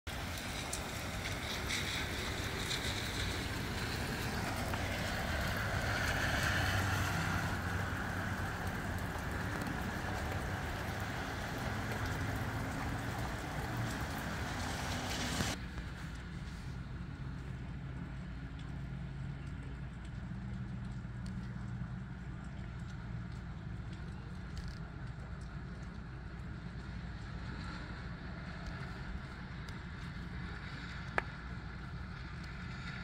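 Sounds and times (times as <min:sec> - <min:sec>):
gusty wind rushing through trees: 0:00.1 - 0:16.0.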